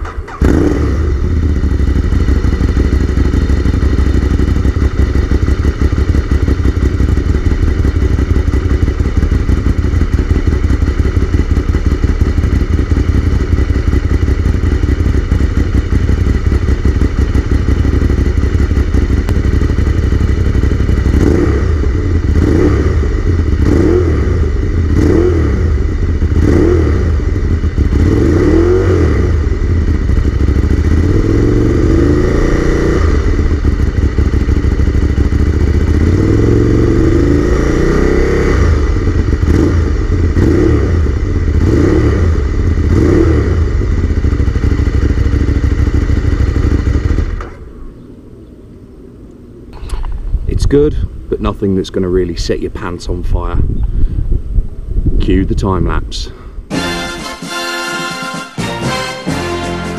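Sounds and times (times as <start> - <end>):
motorcycle engine idling and revving: 0.0 - 56.7.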